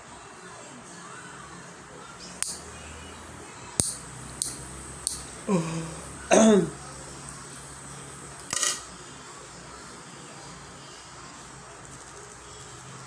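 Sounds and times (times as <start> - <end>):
nail clipper clicks: 2.4 - 2.6, 3.8 - 5.2
person vocal noises: 5.4 - 6.8.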